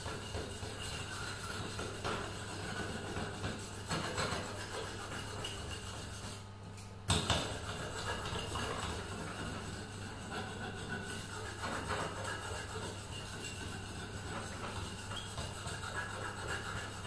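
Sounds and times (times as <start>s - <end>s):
tool scraping metal blade: 7.3s - 17.0s.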